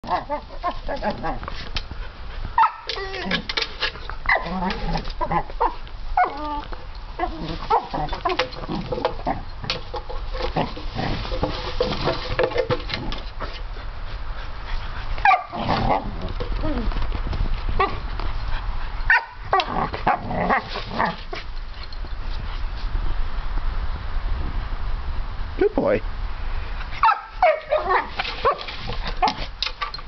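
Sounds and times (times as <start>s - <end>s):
puppy barking: 2.6s - 2.9s, 15.2s - 15.6s, 19.1s - 19.7s, 27.0s - 28.7s.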